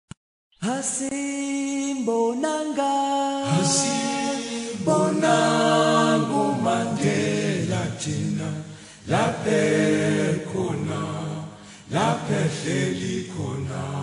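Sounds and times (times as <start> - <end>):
choir singing in harmony: 3.4 - 14.0.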